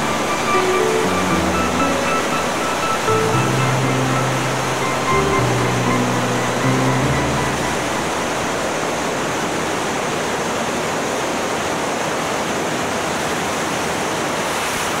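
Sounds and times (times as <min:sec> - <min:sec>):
background music: 0:00.0 - 0:08.8.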